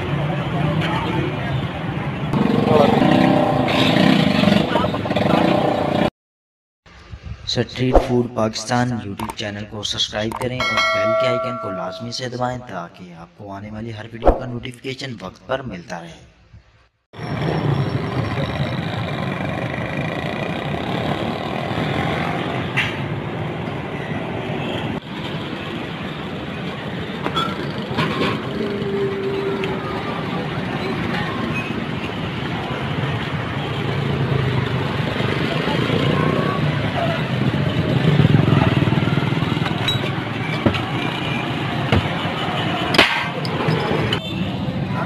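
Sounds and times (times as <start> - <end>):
motorcycle engines passing: 0.0 - 6.1, 17.3 - 45.0
street traffic noise: 0.0 - 6.1, 6.9 - 45.0.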